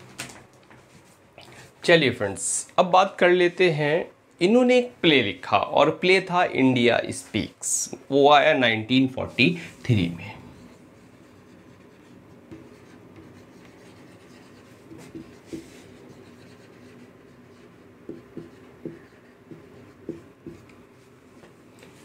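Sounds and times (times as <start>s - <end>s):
marker strokes on whiteboard: 9.3s - 22.0s.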